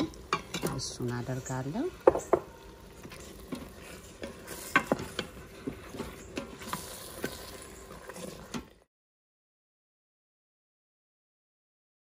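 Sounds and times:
wooden spoon scraping a pot: 0.0s - 8.8s
sauce sizzling: 0.0s - 8.9s.

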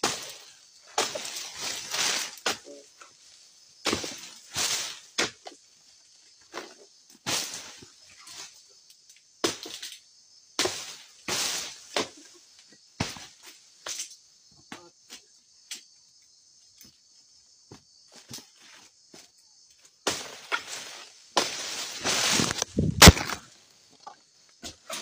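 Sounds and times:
pole cracking palm fronds: 0.0s - 2.8s, 20.1s - 23.5s
insects droning: 0.0s - 25.0s.

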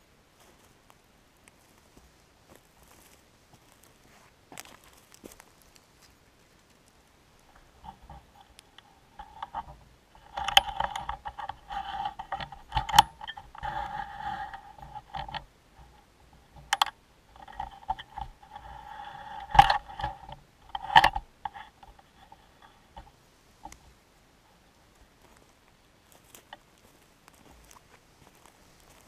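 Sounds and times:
scraping against camera: 7.4s - 23.9s.

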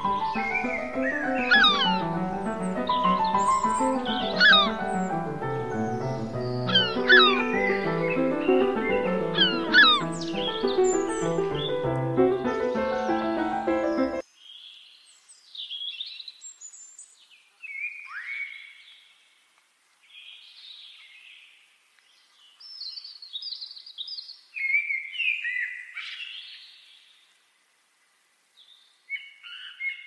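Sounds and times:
birds chirping and whistling: 0.0s - 14.2s.

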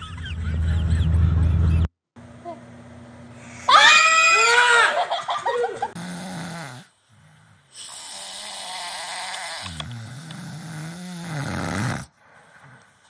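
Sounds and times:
men snoring: 5.9s - 12.1s.

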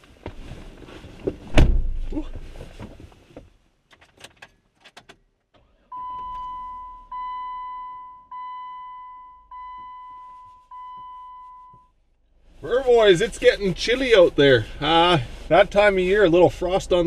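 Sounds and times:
dashboard warning chime: 5.9s - 11.9s.

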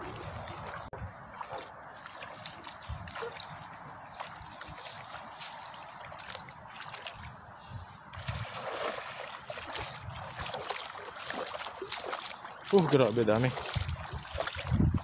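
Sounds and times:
feet wading through water: 0.0s - 15.0s
cast net splashing on water: 8.1s - 15.0s.

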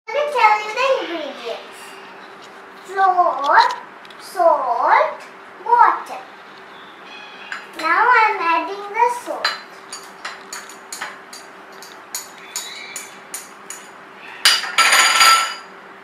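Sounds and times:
child's voice: 0.1s - 2.0s, 2.8s - 6.3s, 7.8s - 9.6s.

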